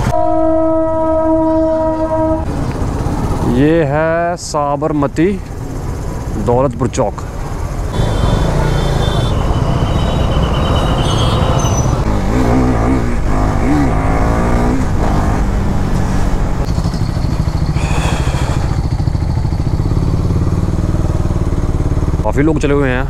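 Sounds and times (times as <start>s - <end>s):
road and wind noise: 0.0s - 23.0s
motorcycle engine running: 7.3s - 23.0s.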